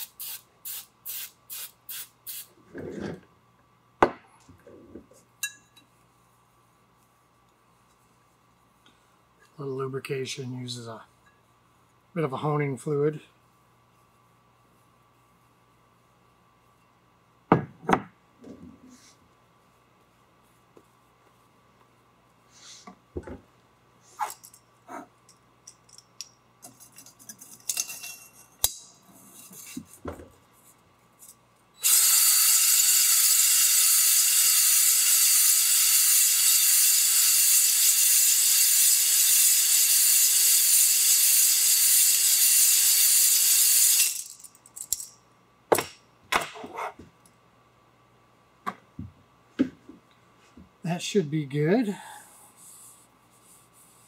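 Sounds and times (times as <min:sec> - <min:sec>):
drill spinning cylinder hone: 0:31.8 - 0:44.2.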